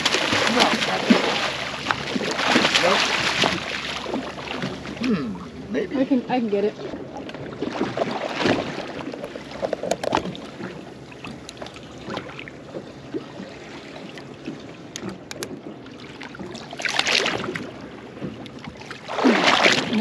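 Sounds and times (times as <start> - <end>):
fish thrashing splash: 0.0 - 5.0, 6.8 - 12.5, 16.0 - 17.7, 18.7 - 20.0
water sloshing against boat hull: 0.0 - 20.0
sharp clicks and knocks: 9.6 - 10.7, 14.9 - 15.6.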